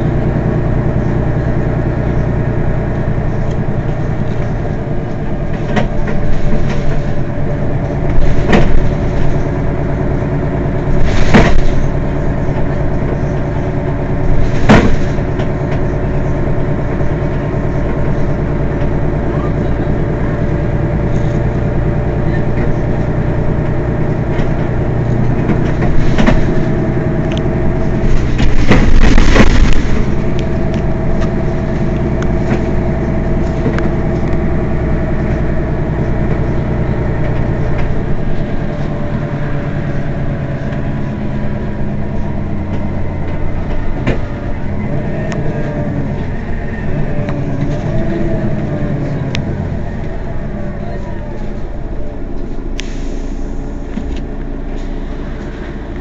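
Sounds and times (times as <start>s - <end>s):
bus engine idling: 0.0s - 56.0s
air brake hiss: 52.8s - 53.8s.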